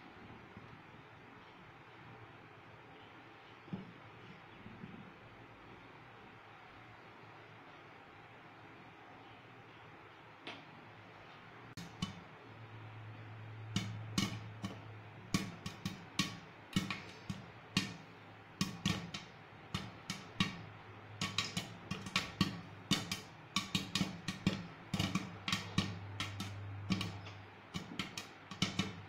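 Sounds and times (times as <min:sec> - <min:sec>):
steady low hum: 0:00.0 - 0:29.0
popcorn popping against glass lid: 0:11.8 - 0:29.0.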